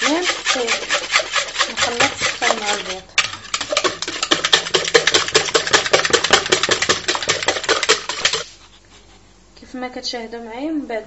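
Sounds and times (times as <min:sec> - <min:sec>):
whisk clattering in plastic bowl: 0:00.0 - 0:08.5.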